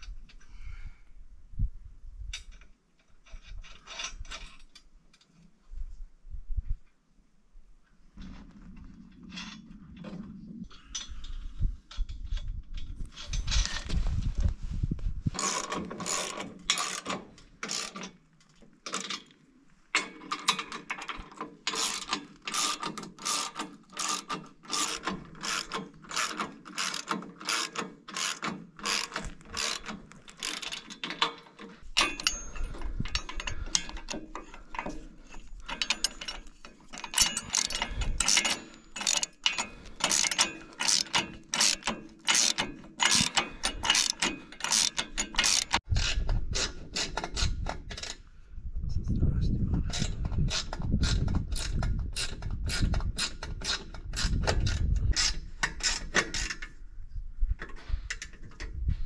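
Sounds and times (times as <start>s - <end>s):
ratchet wrench clicking: 15.4s - 18.0s, 21.7s - 30.8s, 37.0s - 46.1s.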